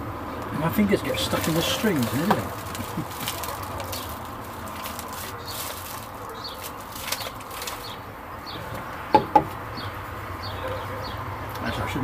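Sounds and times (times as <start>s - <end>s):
road traffic hum: 0.0s - 12.0s
plastic packaging crinkling: 1.0s - 8.1s.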